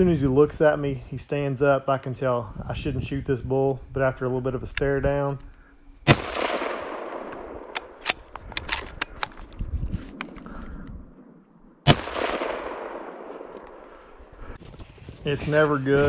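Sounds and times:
rifle shots with echo: 6.0s - 8.2s, 11.8s - 14.0s.

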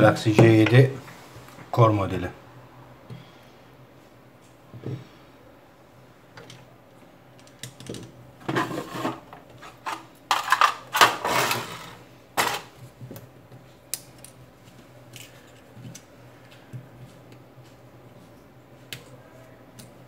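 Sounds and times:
tools clicking and tapping: 19.7s - 20.0s.

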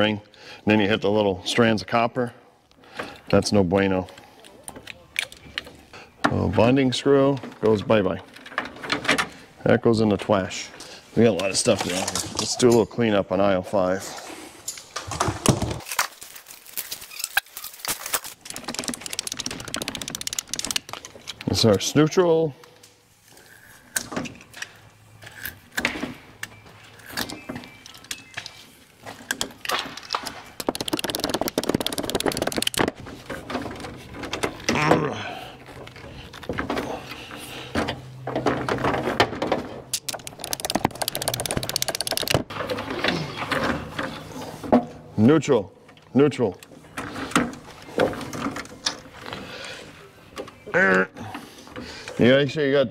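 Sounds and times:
clicks and knocks of handling parts: 14.7s - 21.8s, 23.7s - 34.8s, 35.6s - 45.0s
fast run of clicks: 18.2s - 21.5s, 30.6s - 33.0s, 39.9s - 42.5s.

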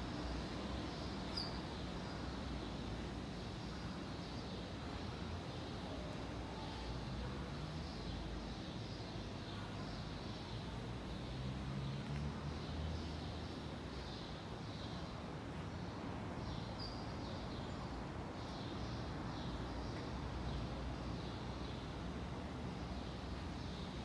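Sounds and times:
low traffic rumble: 0.0s - 24.0s.

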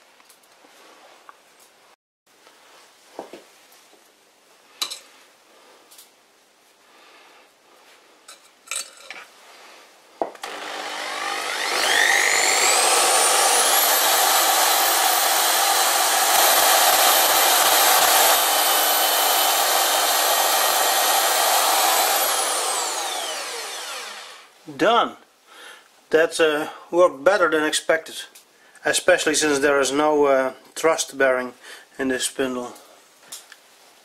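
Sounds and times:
electric drill whining: 10.4s - 24.6s.

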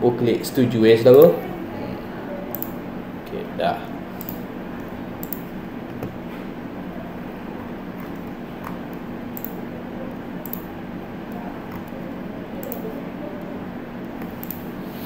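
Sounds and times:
low room hum: 0.0s - 15.0s
computer mouse click: 2.5s - 2.8s, 4.2s - 4.4s, 5.2s - 6.1s, 8.0s - 10.7s, 12.6s - 12.8s, 14.0s - 14.6s.

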